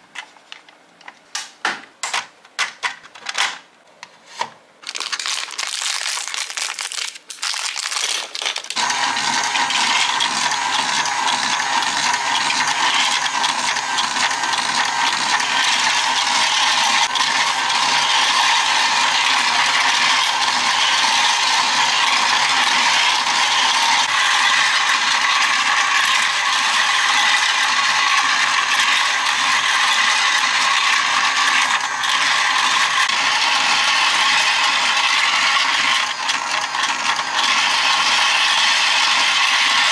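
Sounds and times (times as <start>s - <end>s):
plastic bag crinkling: 4.8s - 8.8s
toy motor clattering: 4.8s - 39.9s.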